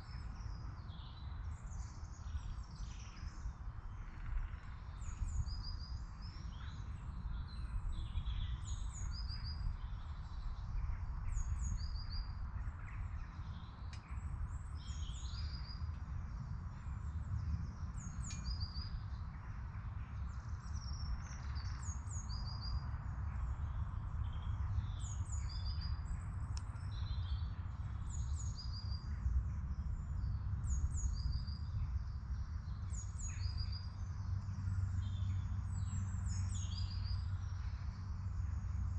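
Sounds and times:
songbirds chirping: 0.0 - 38.9
steady low rumble: 0.0 - 38.9.

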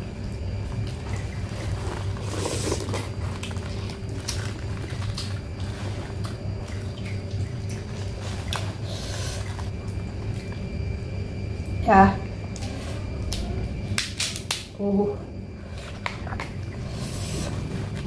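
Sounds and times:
low hum: 0.0 - 18.0
wet eating sounds: 0.2 - 11.8.

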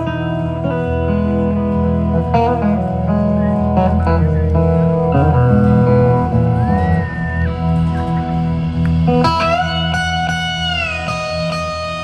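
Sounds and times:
live band playing: 0.0 - 12.0
sustained electric guitar notes: 0.0 - 12.0.

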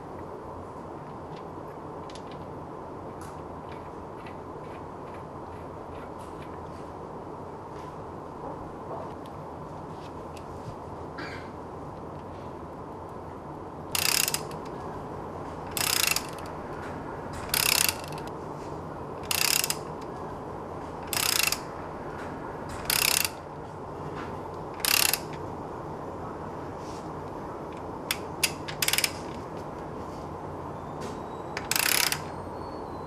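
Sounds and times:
ratchet wrench clicking: 13.9 - 14.7, 15.7 - 16.6, 17.4 - 18.3, 19.2 - 20.1, 21.0 - 21.7, 22.7 - 23.4, 24.7 - 25.4, 28.1 - 29.4, 31.6 - 32.3.

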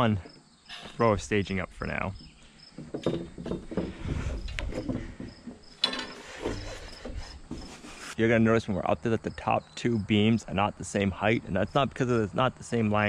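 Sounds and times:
crickets chirping: 0.0 - 13.0
metal scaffold parts rattling: 2.8 - 8.2.

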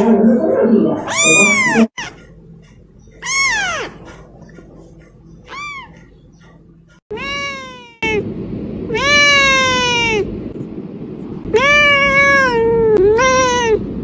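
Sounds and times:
kitten meowing: 1.1 - 2.2, 3.2 - 4.0, 7.1 - 8.2, 8.9 - 10.3, 11.5 - 13.8.

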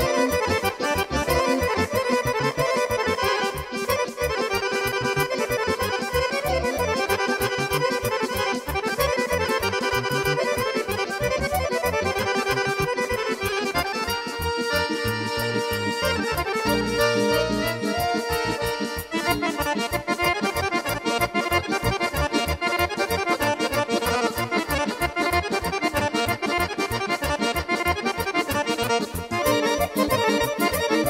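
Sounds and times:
folk band dance tune with trumpets: 0.0 - 31.0
pulsing bass beat: 6.2 - 22.9.

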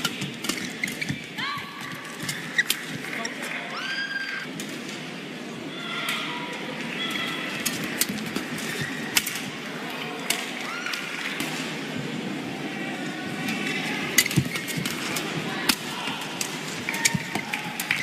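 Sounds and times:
shoes squeaking on floor: 0.0 - 3.5.

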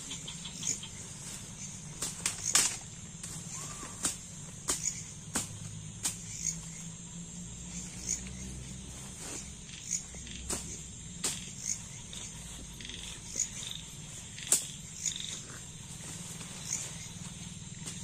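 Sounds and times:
night insects droning: 0.0 - 18.0
tent poles clicking and knocking: 2.0 - 3.4, 4.0 - 6.6.

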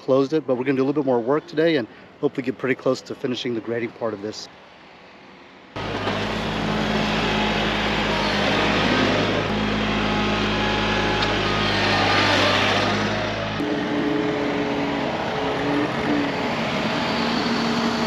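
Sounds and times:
engine running steadily: 5.7 - 18.0.

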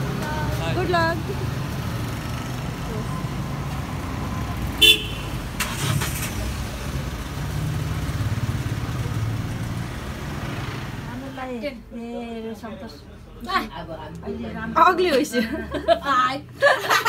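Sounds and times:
short car horn toot: 4.8 - 5.8.

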